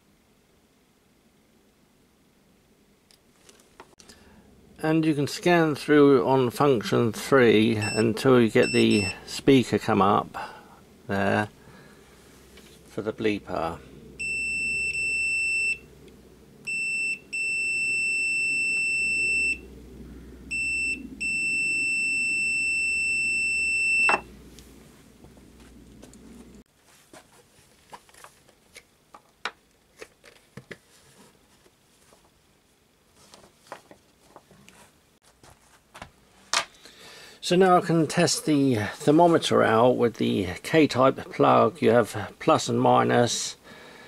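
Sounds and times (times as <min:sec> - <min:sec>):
multimeter continuity beep: 0:07.8 - 0:09.3, 0:14.2 - 0:15.8, 0:16.7 - 0:19.6, 0:20.5 - 0:24.3.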